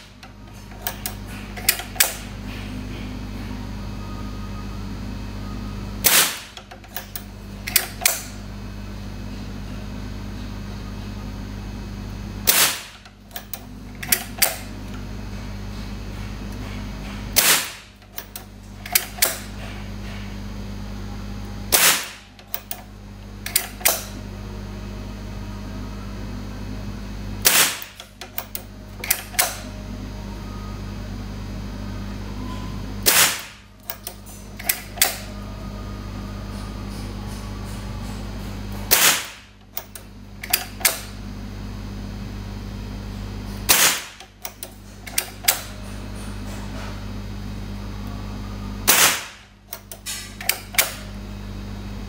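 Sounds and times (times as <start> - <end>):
steady low hum: 0.0 - 52.0
air pistol shots: 6.0 - 6.6, 12.4 - 13.0, 17.4 - 17.9, 21.7 - 22.2, 27.4 - 28.0, 33.0 - 33.6, 38.9 - 39.5, 43.7 - 44.2, 48.9 - 49.5.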